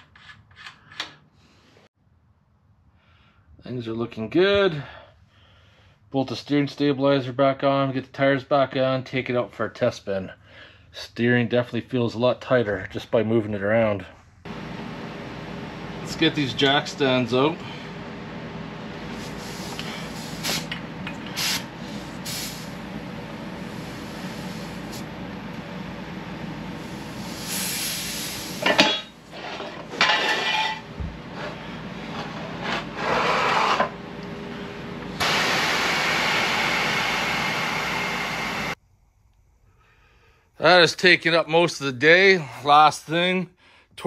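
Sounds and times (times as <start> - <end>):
air jack hissing: 19.1 - 22.9, 23.5 - 25.1, 26.8 - 29.0.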